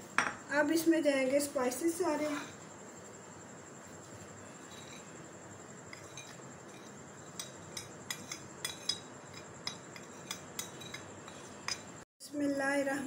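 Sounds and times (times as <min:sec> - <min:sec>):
metal spoon clinking on bowls: 0:05.9 - 0:12.0.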